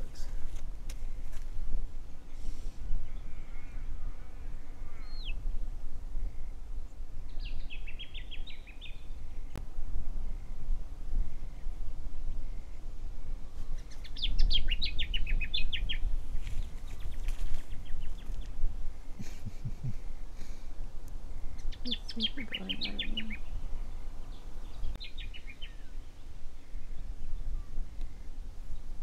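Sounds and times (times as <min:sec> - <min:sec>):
steady low rumble: 0:00.0 - 0:29.0
bird singing: 0:02.1 - 0:09.6, 0:11.3 - 0:16.1, 0:16.8 - 0:18.6, 0:21.3 - 0:29.0.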